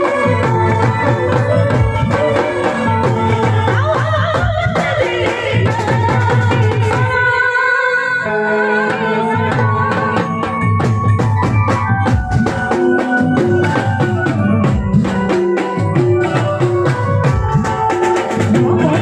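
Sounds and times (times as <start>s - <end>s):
folk band playing: 0.0s - 7.5s, 8.2s - 19.0s
fast drum beat: 10.0s - 19.0s.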